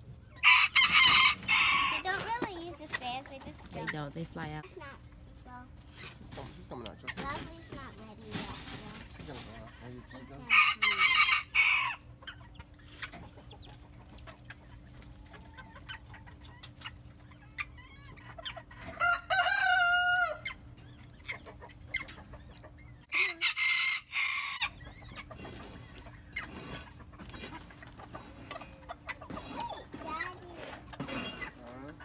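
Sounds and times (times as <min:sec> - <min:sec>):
chickens clucking: 0:00.0 - 0:32.0.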